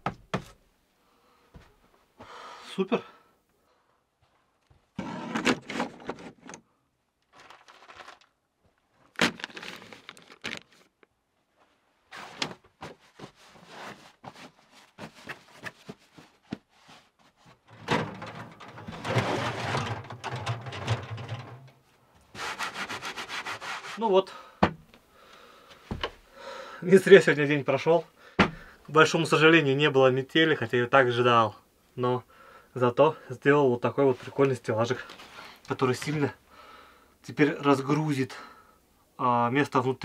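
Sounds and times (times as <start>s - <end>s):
wood rubbing and scraping on wood: 12.1s - 24.1s
wooden boards knocking and clattering: 17.7s - 21.8s, 24.6s - 24.9s, 28.4s - 28.7s.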